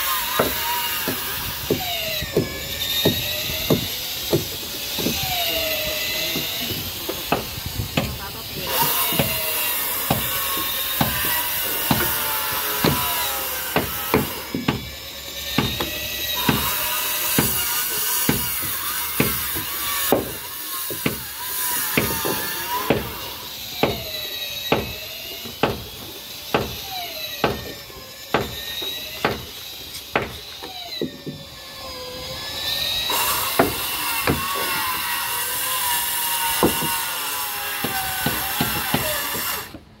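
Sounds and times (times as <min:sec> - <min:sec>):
circular saw whining: 0:00.0 - 0:40.0.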